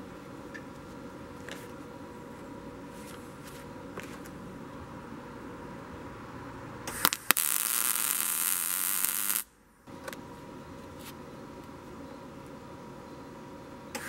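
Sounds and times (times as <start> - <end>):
low steady hum: 0.0 - 14.0
welding arc pops: 6.9 - 9.5
welding arc sizzling: 6.9 - 9.5.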